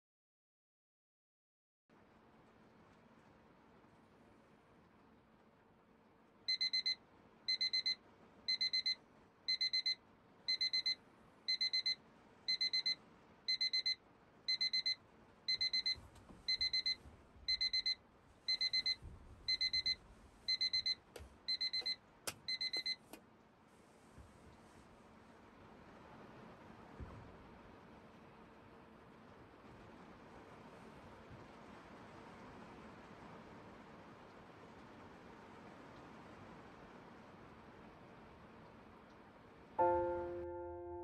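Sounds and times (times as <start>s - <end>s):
electronic alarm beeping: 6.5s - 23.0s.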